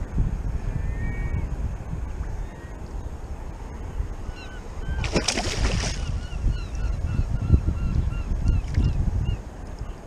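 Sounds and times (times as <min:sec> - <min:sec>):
low rumble of wind and water: 0:00.0 - 0:10.0
fish thrashing and splashing: 0:05.0 - 0:06.1.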